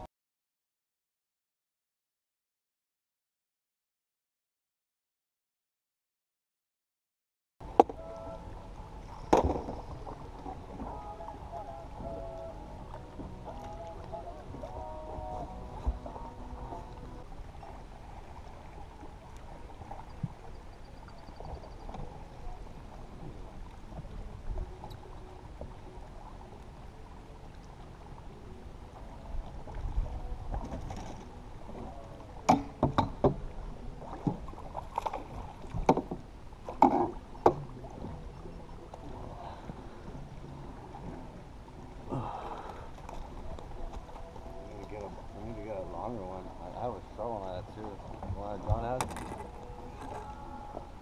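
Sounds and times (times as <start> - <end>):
knocks and clatter on a boat: 7.6 - 8.5, 9.1 - 17.8, 19.8 - 25.8, 29.5 - 38.3, 47.5 - 51.0
water around a boat: 7.6 - 51.0
wind: 7.6 - 51.0.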